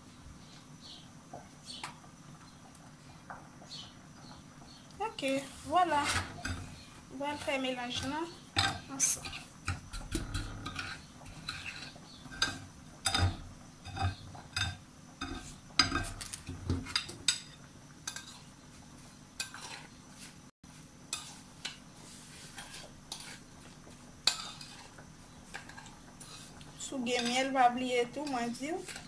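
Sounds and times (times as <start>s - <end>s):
spoon scraping gritty paste: 8.9s - 12.6s, 21.2s - 27.5s.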